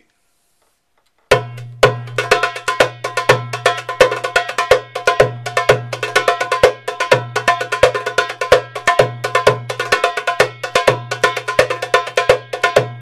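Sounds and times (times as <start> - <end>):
hand drum rhythm: 1.3 - 13.0.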